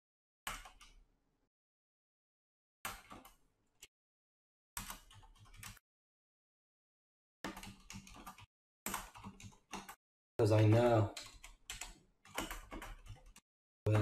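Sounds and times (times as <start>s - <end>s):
keyboard typing clicks: 10.6s - 14.0s.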